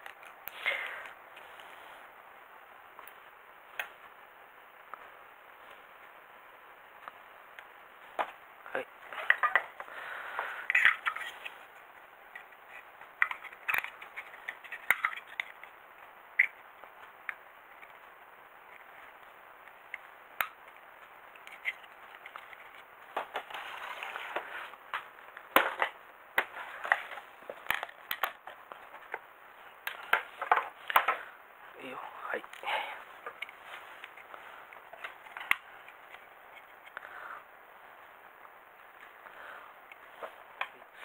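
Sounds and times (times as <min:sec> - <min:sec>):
soft rustling: 0:01.1 - 0:02.2, 0:16.8 - 0:25.4, 0:26.5 - 0:41.0
plastic parts clicking: 0:10.6 - 0:11.3, 0:12.3 - 0:15.7, 0:25.5 - 0:29.2.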